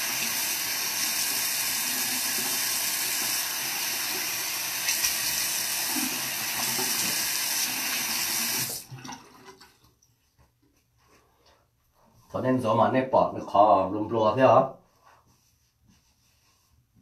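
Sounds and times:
sink tap running: 0.0s - 8.9s.

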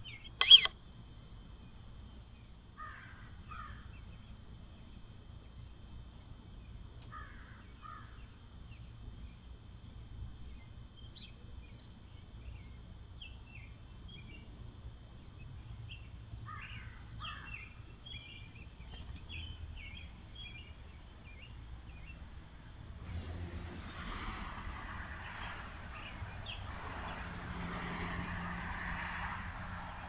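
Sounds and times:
birds chirping: 0.0s - 0.7s, 15.2s - 22.2s.

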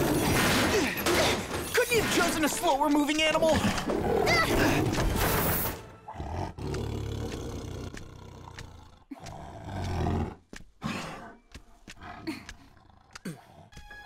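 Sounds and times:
big cat growling and roaring: 3.6s - 5.0s, 6.1s - 11.4s.

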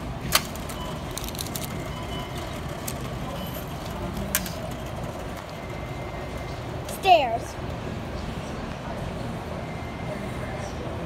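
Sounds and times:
busy supermarket background noise: 0.0s - 11.0s.

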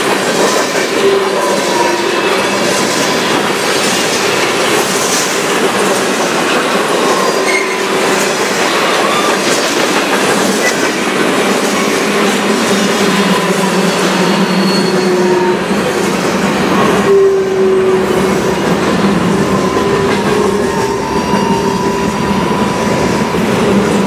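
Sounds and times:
freight train wheels rumbling: 0.0s - 24.0s
wheels squealing: 10.3s - 24.0s.

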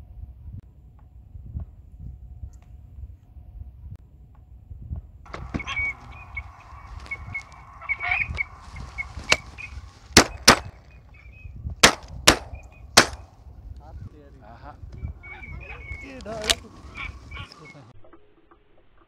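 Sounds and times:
waterfowl calling: 5.3s - 13.4s, 14.6s - 17.9s
shotgun shots: 10.2s - 10.8s, 11.8s - 13.4s.

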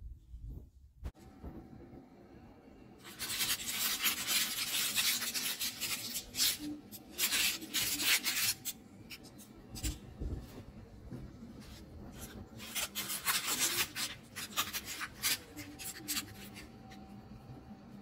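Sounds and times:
parchment paper crinkling: 3.0s - 17.2s.

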